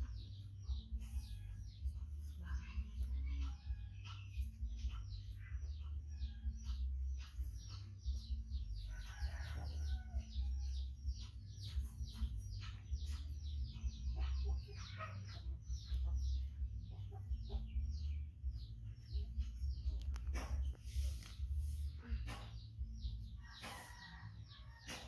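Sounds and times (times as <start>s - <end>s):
small birds chirping: 0.0s - 25.0s
steady low rumble: 9.9s - 23.5s.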